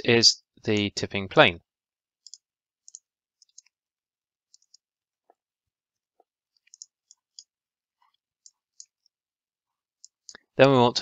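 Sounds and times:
mouse and keyboard clicks: 2.2s - 3.8s, 4.5s - 4.9s, 6.5s - 7.5s, 8.4s - 9.1s.

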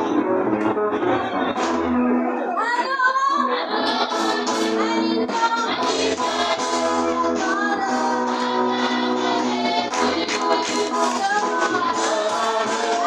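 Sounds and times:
rhythmic hand clapping: 0.0s - 2.1s, 3.8s - 13.0s
woman singing into a microphone: 2.6s - 13.0s
church choir singing: 3.8s - 13.0s.

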